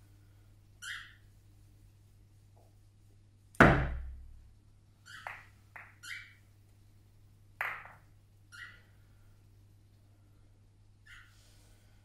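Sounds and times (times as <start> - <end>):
billiard balls clicking: 5.2 - 6.0.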